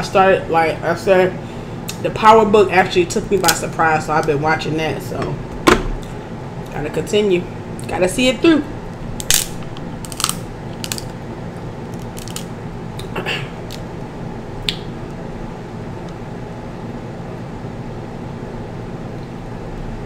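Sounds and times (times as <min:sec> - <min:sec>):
low hum: 0:00.0 - 0:20.0
crab shells cracking: 0:09.2 - 0:11.2, 0:11.8 - 0:13.9.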